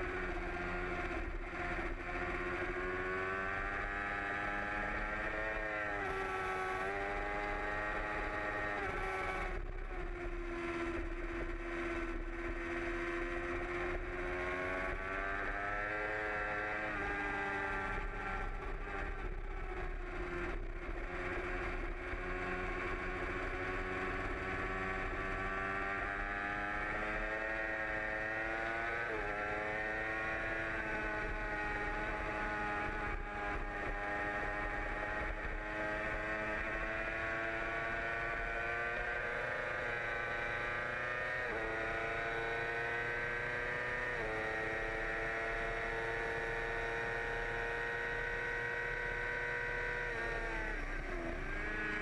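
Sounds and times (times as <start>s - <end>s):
motorcycle engine running hard: 0.0s - 52.0s.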